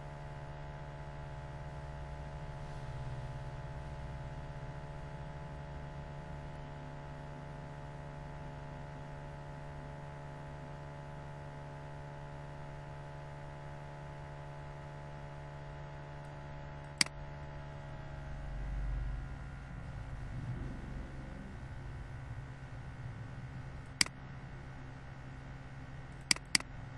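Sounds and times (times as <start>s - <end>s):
electrical mains hum: 0.0s - 26.9s
sharp click: 16.8s - 17.2s, 23.9s - 24.2s, 26.1s - 26.7s
low rumble: 18.2s - 26.3s.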